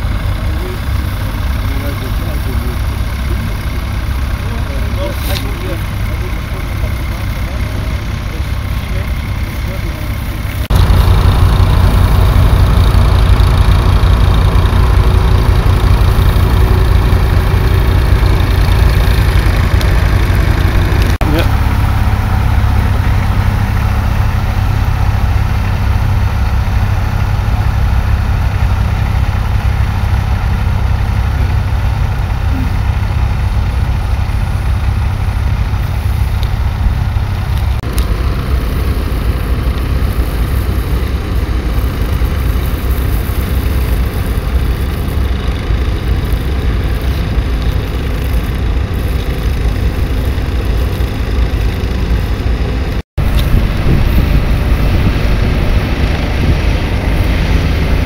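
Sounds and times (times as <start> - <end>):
diesel tractor engine under load: 0.0 - 58.0.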